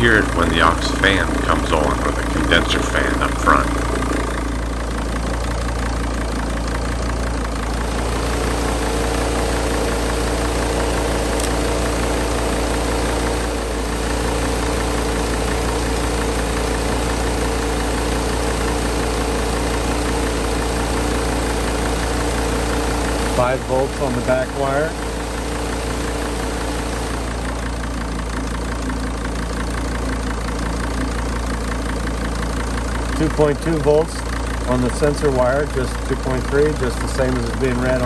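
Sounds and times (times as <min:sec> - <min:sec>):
steady hum: 0:00.0 - 0:27.3
diesel engine idling: 0:00.0 - 0:38.0.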